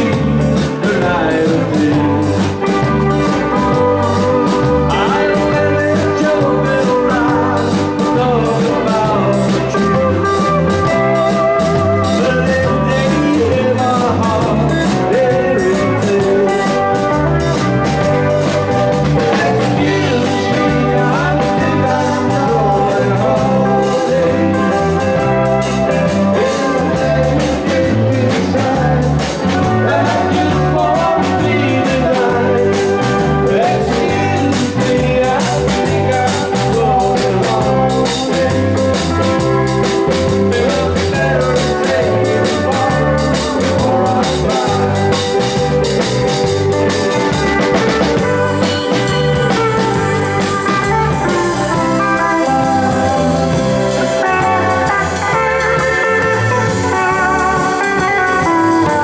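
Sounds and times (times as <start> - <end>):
drum kit: 0.0 - 59.0
electric bass line: 0.0 - 59.0
electric guitar: 0.0 - 59.0
man singing: 0.0 - 59.0.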